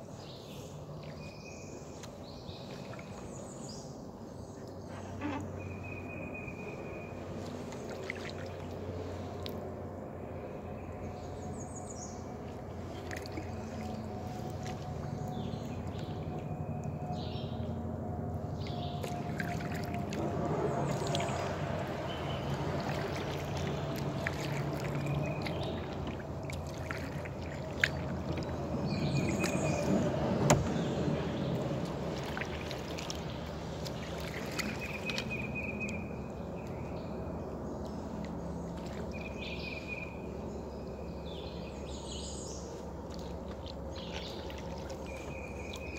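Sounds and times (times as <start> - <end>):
paddle swishing and dripping: 0.5 - 3.8, 4.5 - 9.8, 12.2 - 17.0, 18.4 - 36.9, 42.6 - 45.9
birds chirping: 10.7 - 20.0, 20.6 - 45.9.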